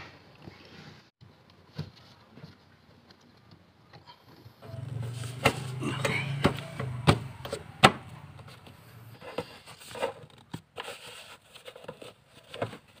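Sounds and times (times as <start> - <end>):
carpet rustling: 4.6 - 13.0.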